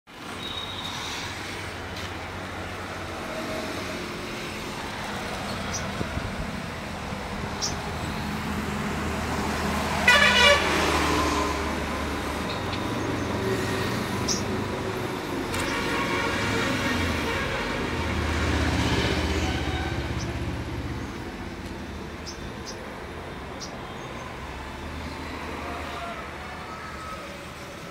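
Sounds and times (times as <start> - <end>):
road traffic rumble: 0.1 - 27.9
vehicle horn honking: 10.0 - 10.9, 15.6 - 18.0.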